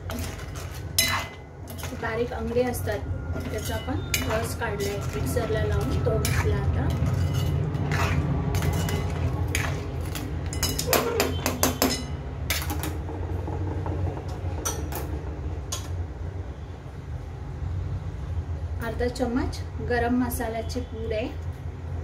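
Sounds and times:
metal ladle clinking on pot: 0.1 - 2.1, 3.4 - 12.9.

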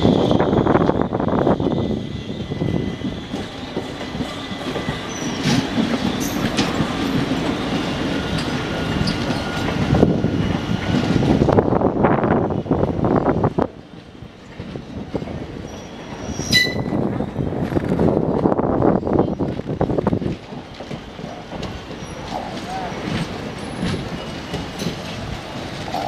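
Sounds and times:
faint high wheel squeal: 1.7 - 6.9, 15.6 - 17.0, 21.9 - 23.0
train wheels clattering over rail joints: 3.2 - 11.3, 19.4 - 26.0.

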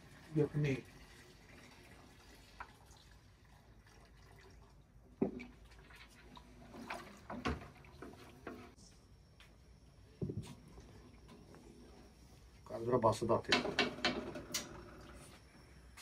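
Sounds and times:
wooden spoon stirring liquid: 3.6 - 8.8.

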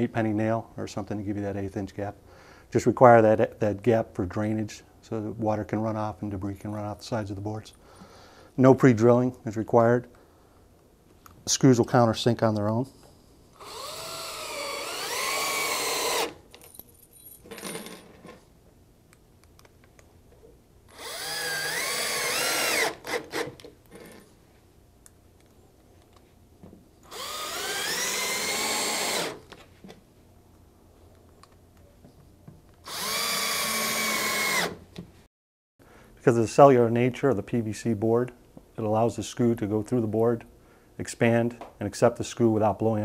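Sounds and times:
cordless drill whining: 13.6 - 16.4, 20.9 - 24.0, 27.0 - 29.5, 32.9 - 34.8.

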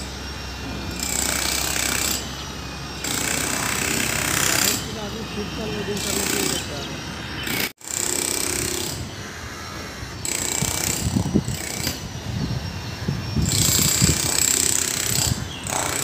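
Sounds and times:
jackhammer breaking concrete: 0.0 - 2.3, 3.0 - 4.9, 13.5 - 16.0.

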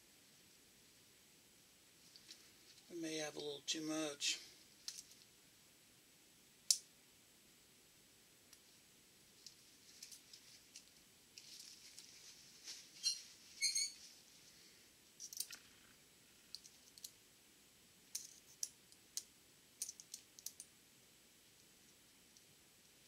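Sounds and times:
soft rustle: 1.9 - 3.6, 4.4 - 5.4, 8.5 - 17.2.

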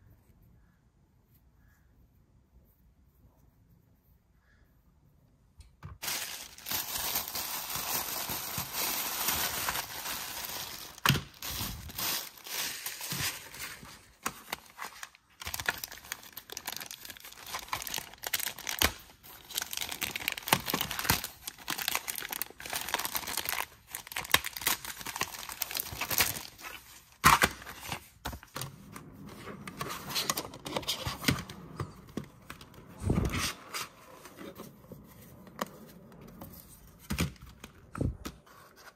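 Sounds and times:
plastic bag crinkling: 6.0 - 28.5.

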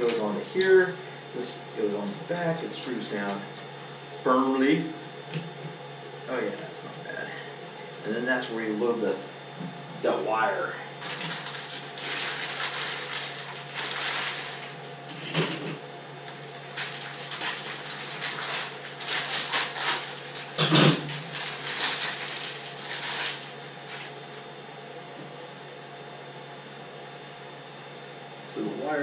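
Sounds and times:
packaging rustling: 11.0 - 14.8, 16.3 - 24.5.

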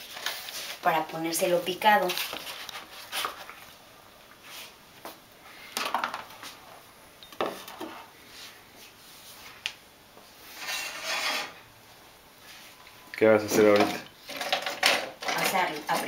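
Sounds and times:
kitchenware knocks and scrapes: 10.6 - 11.6, 13.5 - 16.0.

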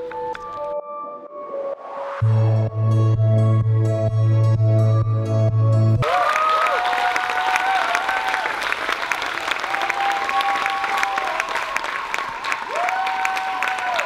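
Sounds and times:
long whoops: 6.0 - 8.6, 9.6 - 14.0
audience applauding: 6.0 - 14.0.

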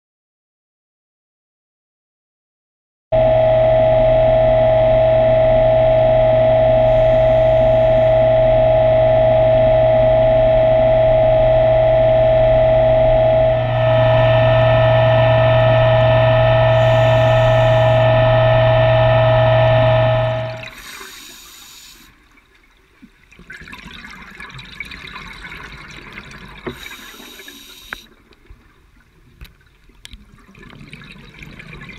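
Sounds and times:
underwater scooter motor whine: 3.2 - 22.1.

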